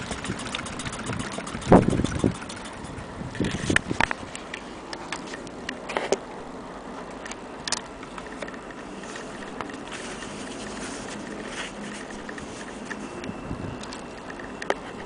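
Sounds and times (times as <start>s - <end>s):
fabric rustling: 9.0s - 13.2s.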